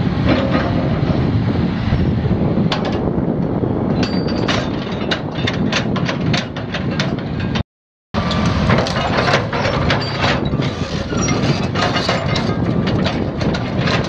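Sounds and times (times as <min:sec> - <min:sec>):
heavy steel parts clanking: 0:04.0 - 0:07.6, 0:08.2 - 0:14.0.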